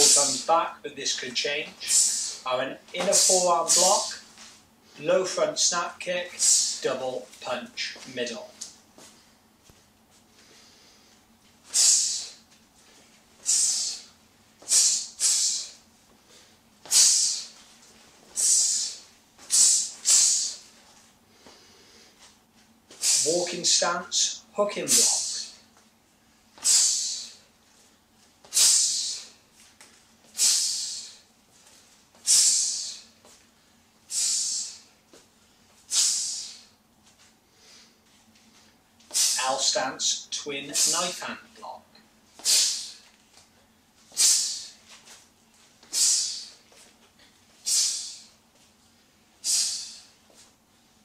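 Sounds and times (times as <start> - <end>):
sharp forceful breaths: 1.8 - 2.5, 6.4 - 6.9, 10.4 - 17.6, 18.3 - 20.7, 23.0 - 23.4, 24.9 - 25.6, 26.6 - 27.5, 28.5 - 29.4, 30.3 - 31.3, 32.2 - 33.2, 34.1 - 35.0, 35.9 - 36.8, 39.1 - 39.6, 42.4 - 43.1, 44.1 - 44.9, 45.8 - 46.7, 47.6 - 48.4, 49.4 - 50.2
sharp hissing exhalations: 1.8 - 2.5, 6.3 - 6.9, 11.7 - 12.4, 13.4 - 15.8, 16.4 - 17.6, 18.4 - 20.7, 23.0 - 23.4, 24.9 - 25.6, 26.6 - 27.5, 28.5 - 29.4, 30.4 - 31.3, 32.2 - 33.2, 34.1 - 35.0, 35.9 - 36.8, 39.1 - 39.6, 42.4 - 43.0, 44.1 - 44.8, 45.9 - 46.6, 47.6 - 48.4, 49.4 - 50.2.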